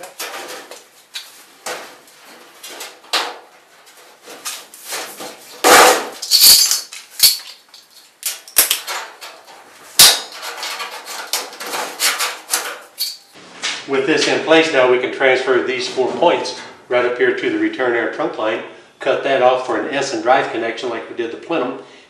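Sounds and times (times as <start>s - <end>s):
sheet-metal ducts clanging: 0.0s - 14.5s
sharp metallic bangs: 5.6s - 7.4s.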